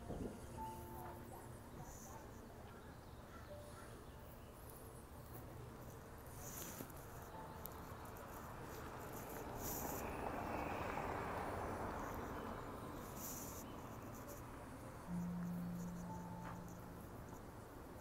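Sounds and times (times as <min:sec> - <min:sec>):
car passing: 0:08.1 - 0:18.0
faint high chirps: 0:15.1 - 0:17.4
low steady hum: 0:15.1 - 0:18.0.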